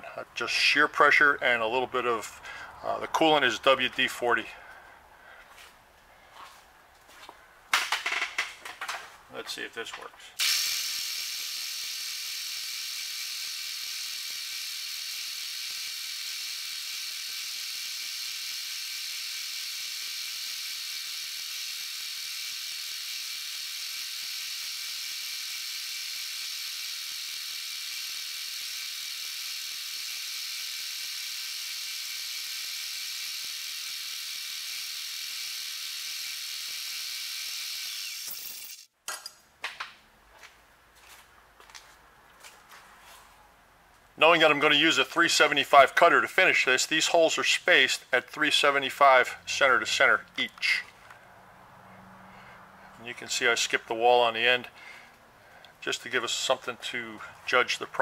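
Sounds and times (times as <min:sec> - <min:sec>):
drill cutting steel hiss: 0:10.4 - 0:38.9.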